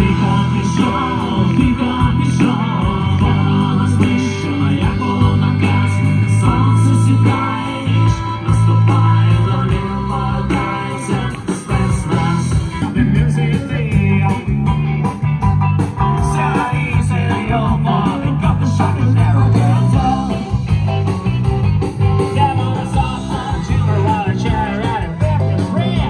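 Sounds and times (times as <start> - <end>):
person singing: 0.0 - 14.9, 16.1 - 20.9, 22.2 - 26.0
bass guitar: 0.0 - 26.0
drum kit: 0.0 - 26.0
electric guitars: 0.0 - 26.0.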